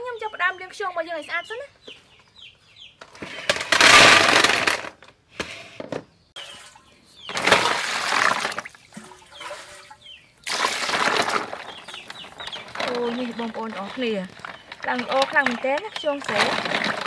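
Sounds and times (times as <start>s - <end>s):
water pouring and splashing: 7.3s - 15.3s.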